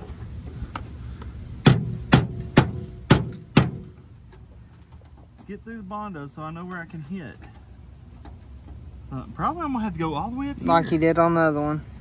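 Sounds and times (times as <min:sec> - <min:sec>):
hammer striking metal panel: 0:01.6 - 0:04.0.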